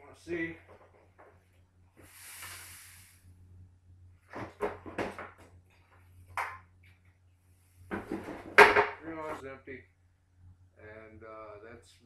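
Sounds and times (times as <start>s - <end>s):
gas hissing from a pipe: 2.0s - 3.4s.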